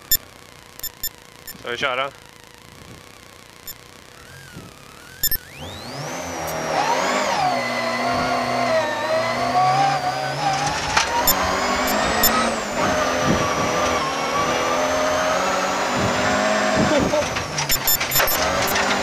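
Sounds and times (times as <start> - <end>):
sharp clicks: 0.8 - 1.7, 5.2 - 5.4, 10.6 - 12.5, 17.2 - 19.0
rally car engine accelerating: 4.3 - 19.0.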